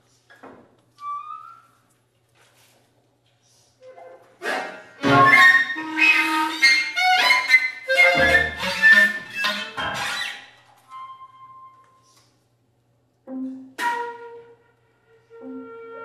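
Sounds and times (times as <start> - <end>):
chamber ensemble playing: 4.9 - 10.3.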